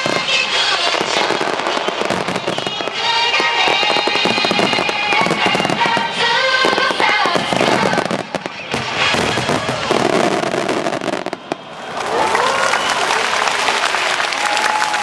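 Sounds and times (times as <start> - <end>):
music playing: 0.0 - 9.5
fireworks bursting: 0.0 - 11.9.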